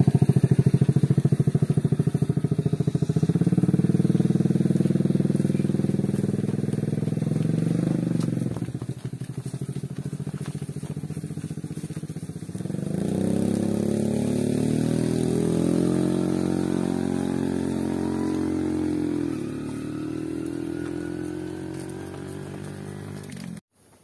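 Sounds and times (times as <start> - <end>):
motorcycle engine revving: 0.0 - 23.7.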